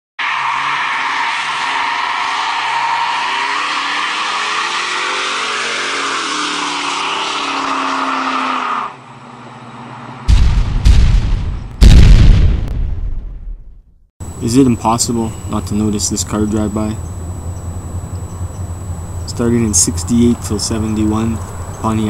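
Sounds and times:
tires squealing: 0:00.2 - 0:10.3
car engine: 0:00.2 - 0:10.9, 0:14.2 - 0:22.0
loud low boom: 0:10.3 - 0:14.0.

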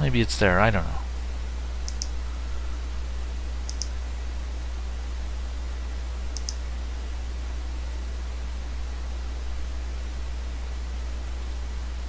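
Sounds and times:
low hum and faint hiss: 0:00.0 - 0:12.0
computer mouse double clicks: 0:01.8 - 0:02.1, 0:03.7 - 0:03.9, 0:06.3 - 0:06.6.

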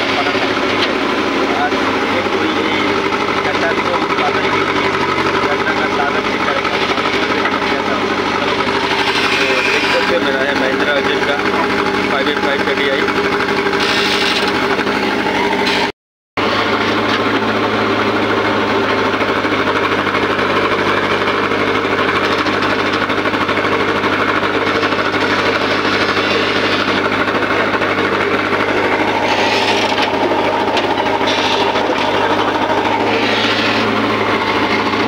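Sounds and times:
backhoe loader working: 0:00.0 - 0:35.0
tractor diesel engine idling: 0:00.0 - 0:35.0
short scraping bursts: 0:08.8 - 0:10.3, 0:13.8 - 0:14.7, 0:24.7 - 0:27.0, 0:29.1 - 0:35.0.

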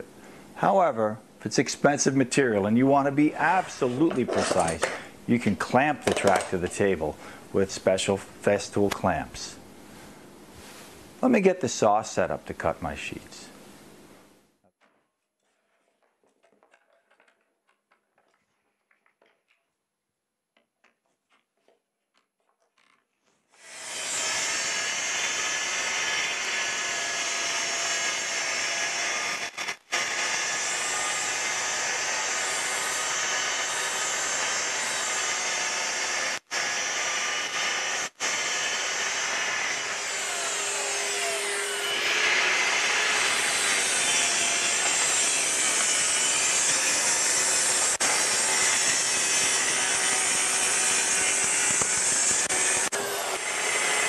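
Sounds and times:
circular saw cutting plywood: 0:23.6 - 0:54.0.

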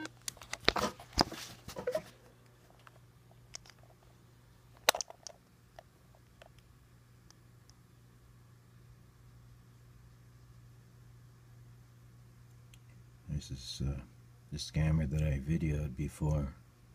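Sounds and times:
low steady hum: 0:00.0 - 0:16.9
camera handling bumps and rustling: 0:00.2 - 0:04.0, 0:04.8 - 0:05.4.

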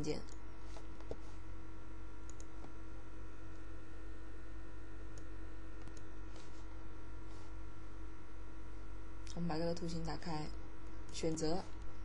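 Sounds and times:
steady electrical hum: 0:00.0 - 0:12.0
computer mouse clicks: 0:02.3 - 0:02.8, 0:05.1 - 0:06.1.

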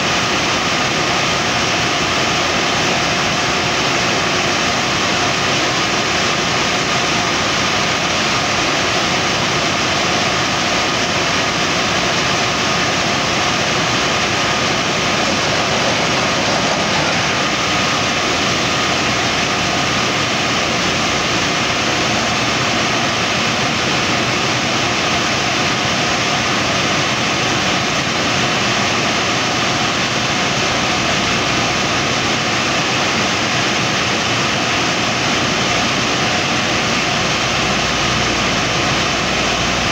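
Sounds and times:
drilling rig air and engine noise: 0:00.0 - 0:39.9
faint high whine: 0:09.3 - 0:26.2.

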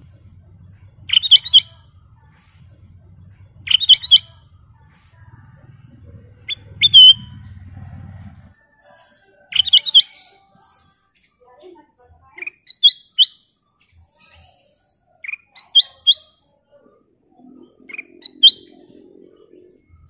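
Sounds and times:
faint low hum: 0:00.0 - 0:08.8
bird warbling song: 0:00.5 - 0:02.0, 0:03.3 - 0:04.5, 0:06.3 - 0:07.7, 0:09.5 - 0:11.7, 0:12.4 - 0:20.0.

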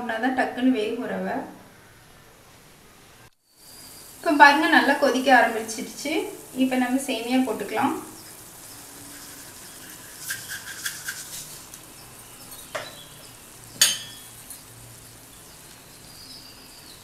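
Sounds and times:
water boiling in a pan: 0:03.4 - 0:17.0
metal ladle knocking on pan: 0:13.8 - 0:14.3.

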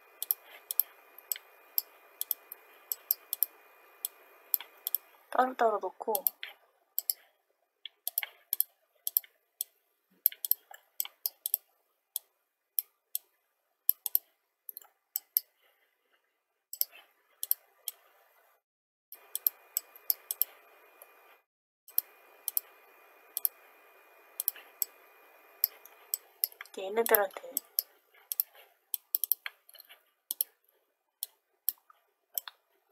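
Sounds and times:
computer mouse clicking: 0:00.0 - 0:05.2, 0:06.2 - 0:07.3, 0:07.9 - 0:13.3, 0:13.9 - 0:15.5, 0:16.7 - 0:18.0, 0:19.2 - 0:21.3, 0:21.9 - 0:22.7, 0:23.3 - 0:23.6, 0:24.4 - 0:30.6, 0:31.2 - 0:32.7
faint hiss with thin whine: 0:00.0 - 0:05.7, 0:19.2 - 0:28.0.

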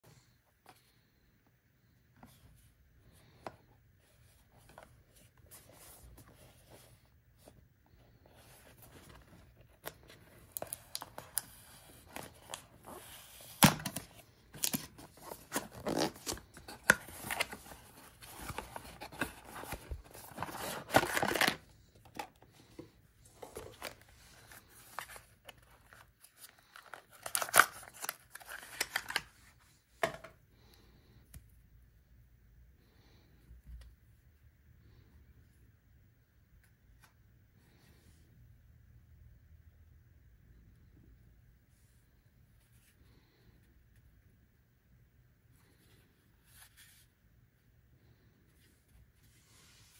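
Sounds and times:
cardboard box being unpacked: 0:08.4 - 0:22.3, 0:23.4 - 0:29.3.

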